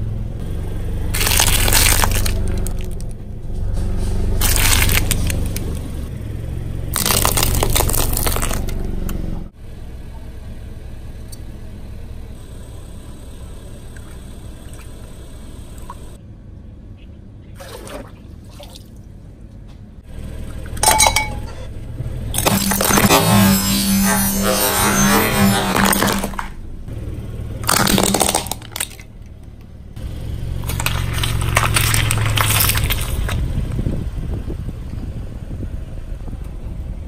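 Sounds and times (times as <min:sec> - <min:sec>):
car tyre crushing objects: 0:00.9 - 0:06.1, 0:06.8 - 0:09.4, 0:20.6 - 0:33.9
sharp cracks: 0:01.1 - 0:03.2, 0:04.4 - 0:05.9, 0:06.9 - 0:08.8, 0:22.3 - 0:26.8, 0:27.6 - 0:29.8, 0:30.4 - 0:33.5.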